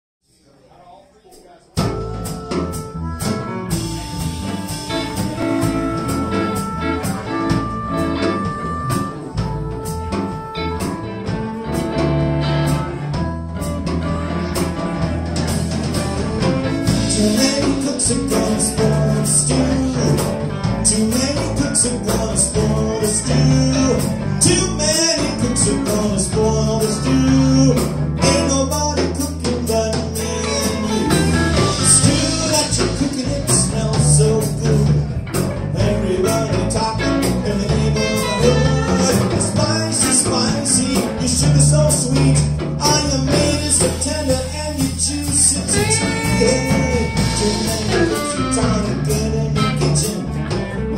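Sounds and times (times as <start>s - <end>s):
electric blues band playing: 1.7s - 50.9s
harmonica long held notes: 1.8s - 34.4s, 36.0s - 50.9s.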